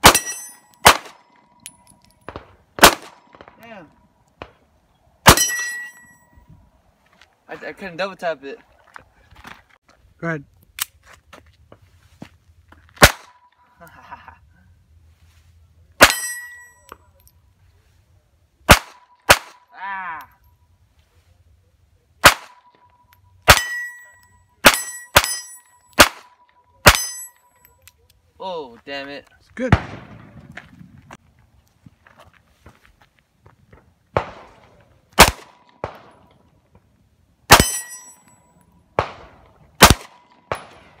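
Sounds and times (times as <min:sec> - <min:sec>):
steel target clanging: 0:00.0 - 0:01.0, 0:05.3 - 0:06.3, 0:16.0 - 0:16.9, 0:23.5 - 0:26.0, 0:26.8 - 0:27.7, 0:37.5 - 0:38.6
pistol shots: 0:00.0 - 0:01.3, 0:02.3 - 0:03.6, 0:05.3 - 0:05.9, 0:13.0 - 0:13.4, 0:18.7 - 0:19.6, 0:22.2 - 0:22.7, 0:23.5 - 0:24.0, 0:24.6 - 0:27.2, 0:29.7 - 0:30.4, 0:34.2 - 0:36.3, 0:37.5 - 0:38.1, 0:39.0 - 0:41.0
handgun shots: 0:35.2 - 0:36.1, 0:37.5 - 0:38.0, 0:39.0 - 0:40.8.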